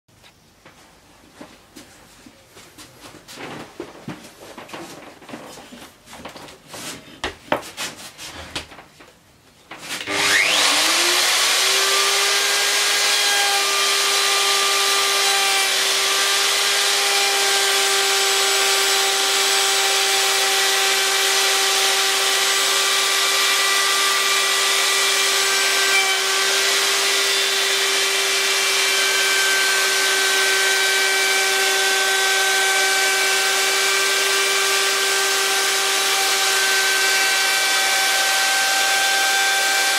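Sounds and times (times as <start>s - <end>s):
router whining cutting wood: 10.0s - 39.9s.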